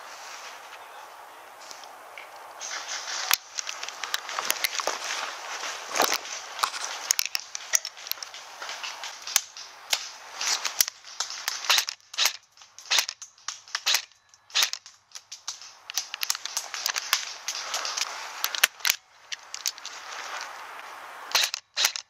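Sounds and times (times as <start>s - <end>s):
rustling vegetation: 0.0s - 22.0s
footsteps on gravel: 2.6s - 13.1s, 14.6s - 20.9s
airsoft rifle shots: 6.0s - 19.0s, 21.3s - 22.0s.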